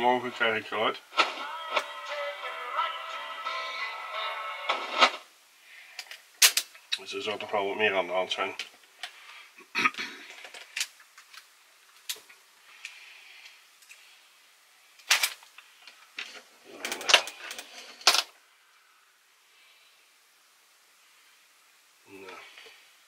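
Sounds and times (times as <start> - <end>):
cassette clattering: 1.2 - 1.9, 4.7 - 5.2.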